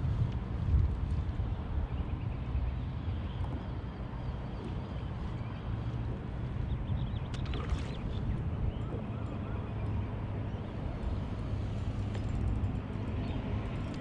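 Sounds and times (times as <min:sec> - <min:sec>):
wind buffeting microphone: 0:00.0 - 0:09.1.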